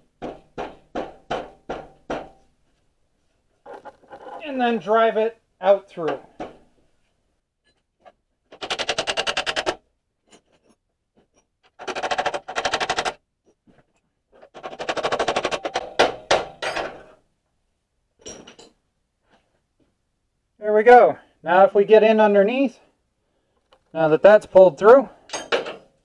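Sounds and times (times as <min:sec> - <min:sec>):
heavy knocks: 0:00.0 - 0:02.4
rapid hammering strikes: 0:00.0 - 0:02.4, 0:11.8 - 0:13.2, 0:14.5 - 0:16.8.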